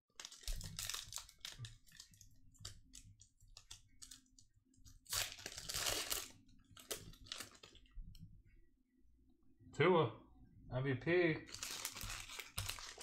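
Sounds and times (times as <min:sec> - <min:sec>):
wrapper crinkling: 0:00.1 - 0:07.9, 0:11.5 - 0:13.0
wrapper ripping open: 0:00.2 - 0:03.0, 0:05.0 - 0:07.8, 0:11.5 - 0:13.0.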